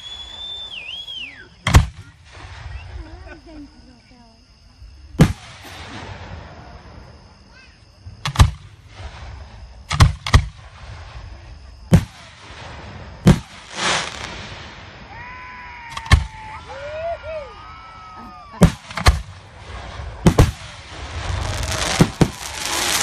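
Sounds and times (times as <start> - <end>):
firework hissing crackle: 10.6 - 15.3, 18.7 - 23.0
firework shells bursting: 20.2 - 23.0.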